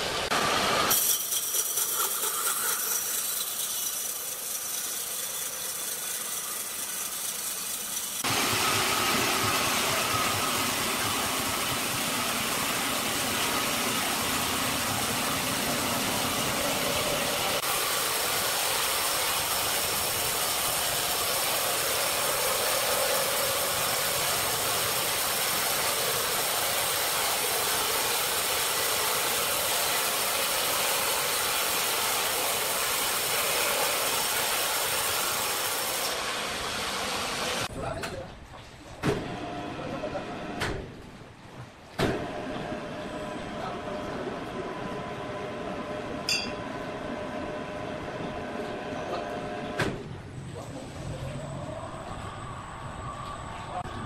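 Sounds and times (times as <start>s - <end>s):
band saw cutting log: 0.0s - 37.7s
motor hum: 5.8s - 37.7s.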